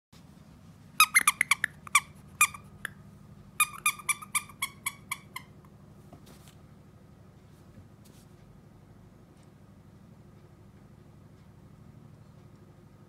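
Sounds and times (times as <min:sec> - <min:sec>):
squeaky toy squeaks: 0:01.0 - 0:03.0, 0:03.6 - 0:05.6.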